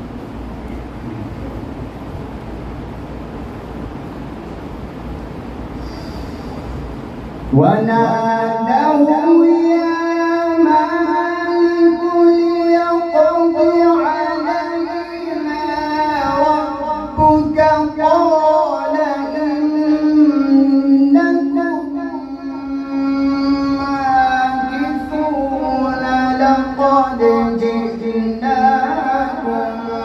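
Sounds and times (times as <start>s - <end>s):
man reciting melodically: 7.5s - 30.0s.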